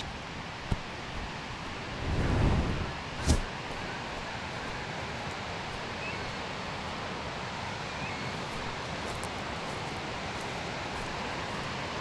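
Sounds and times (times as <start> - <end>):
waterfall rushing: 0.0 - 12.0
vegetation rustling: 7.7 - 12.0.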